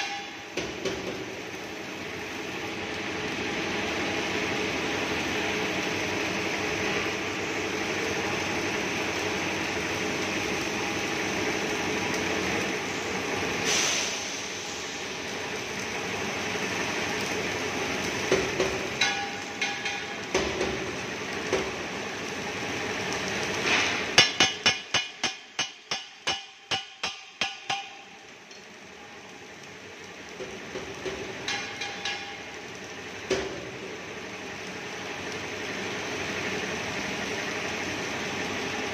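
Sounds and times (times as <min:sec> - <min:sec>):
sharp metal strikes: 0:00.0 - 0:00.7, 0:24.2 - 0:28.2
welding machine humming: 0:00.0 - 0:38.9.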